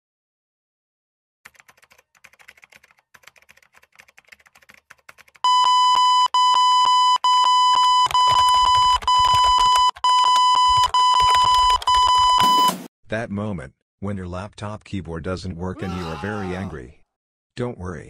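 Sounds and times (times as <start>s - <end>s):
laptop keys clicking: 1.5s - 5.5s
high electronic beeps: 5.5s - 12.8s.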